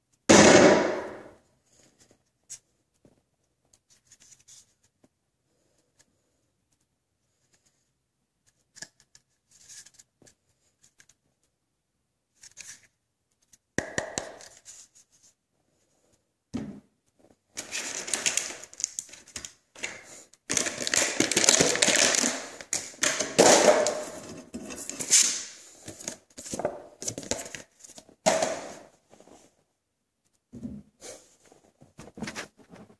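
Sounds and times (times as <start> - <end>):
plastic packaging rustling: 17.5 - 29.5.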